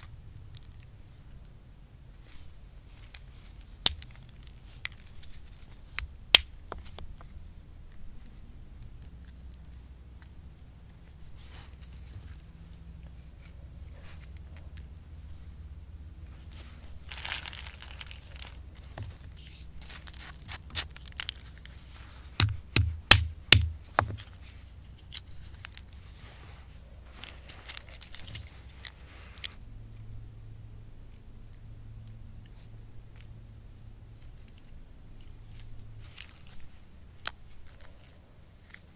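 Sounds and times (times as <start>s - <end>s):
acorn shells crackling and crunching: 3.0s - 7.2s, 16.4s - 26.1s, 27.1s - 29.6s.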